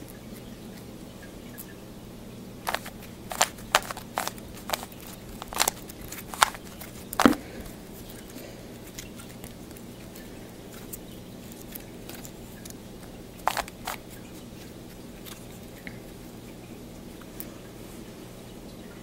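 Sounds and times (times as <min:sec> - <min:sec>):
low steady hum: 0:00.0 - 0:19.0
plastic puzzle cube clicking: 0:02.7 - 0:07.4, 0:13.4 - 0:14.0.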